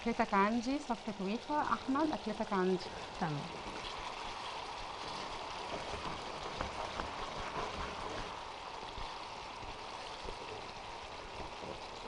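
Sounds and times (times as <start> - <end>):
sauce bubbling in a pan: 0.0 - 12.0.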